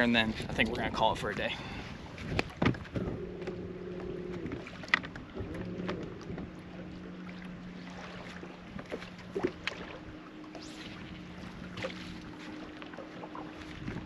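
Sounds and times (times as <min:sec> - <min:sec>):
light knocks on boat: 0:02.2 - 0:03.6
electric trolling motor humming: 0:02.9 - 0:14.0.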